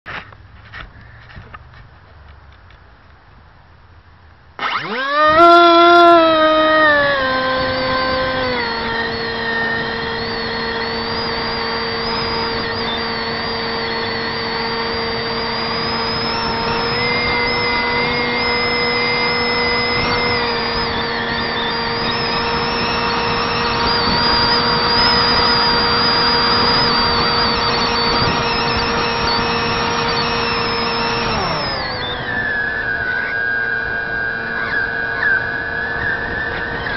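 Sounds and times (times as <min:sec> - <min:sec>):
electric motor buzzing whine: 0:04.6 - 0:36.9.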